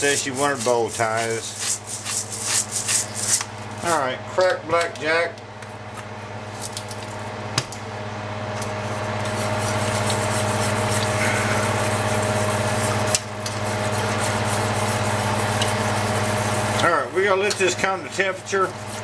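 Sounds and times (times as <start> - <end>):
whisk swishing in a skillet: 0.0 - 3.5, 8.9 - 19.0
steady low hum: 0.0 - 19.0.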